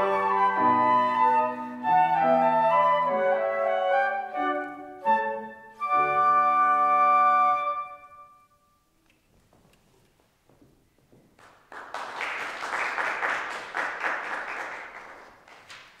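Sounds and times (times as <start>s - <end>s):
flutes and piano chord: 0.0s - 8.5s
audience applause: 11.4s - 16.0s.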